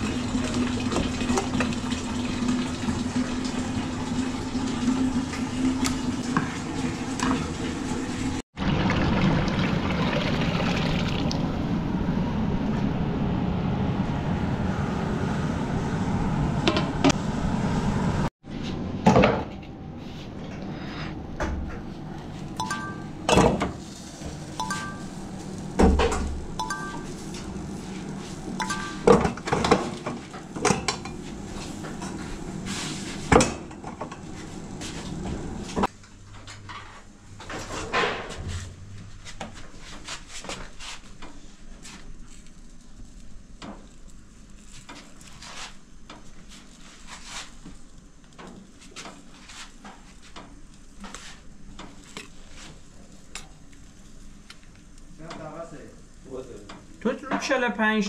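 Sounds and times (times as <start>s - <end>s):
dishes and pots clattering: 28.6s - 31.2s.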